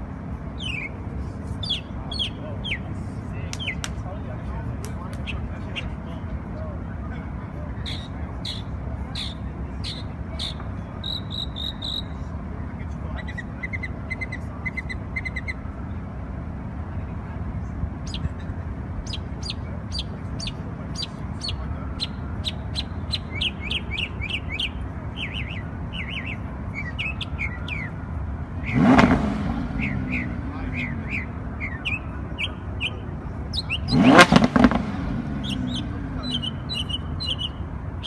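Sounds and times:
city traffic rumble: 0.0 - 38.0
songbirds chirping: 0.0 - 38.0
car engine revving: 28.6 - 31.5, 33.8 - 36.8.

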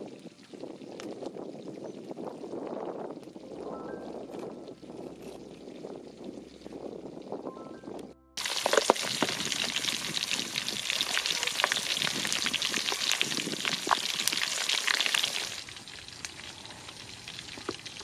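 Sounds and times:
meat deep-frying in hot oil: 0.0 - 3.6, 8.4 - 18.0.

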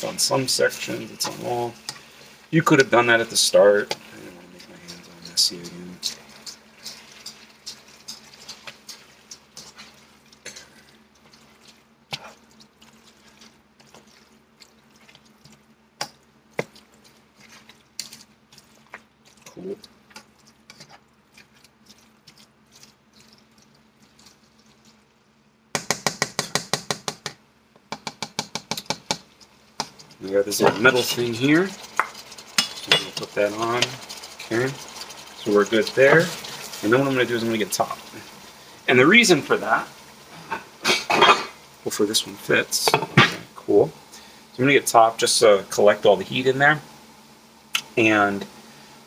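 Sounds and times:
spatula scraping frying pan: 0.0 - 15.6, 20.1 - 22.3, 29.3 - 38.8.

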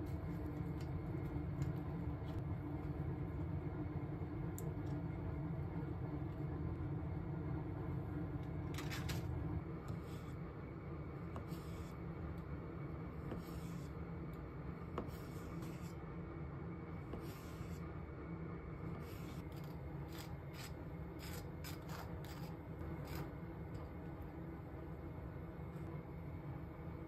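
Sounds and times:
steady low hum: 0.0 - 27.0
butter scraped across bread: 19.0 - 23.3
knife scraping on cutting board: 19.0 - 23.3.

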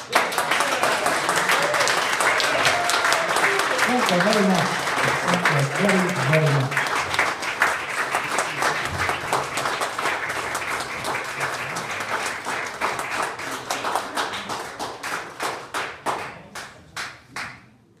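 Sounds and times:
audience applauding: 0.0 - 17.5.

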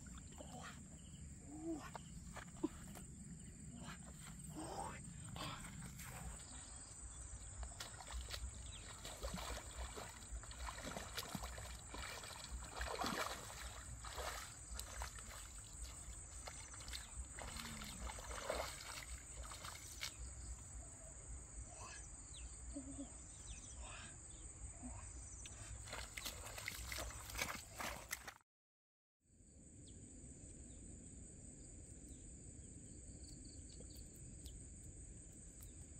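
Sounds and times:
footsteps splashing through muddy water: 3.8 - 20.4, 25.6 - 28.4.

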